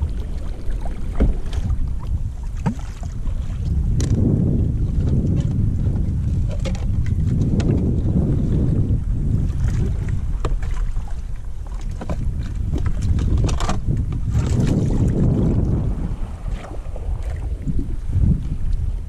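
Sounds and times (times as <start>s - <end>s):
water sloshing against kayak hull: 0.0s - 19.0s
wind buffeting microphone: 0.0s - 19.0s
fishing gear clicks and knocks: 12.0s - 13.9s.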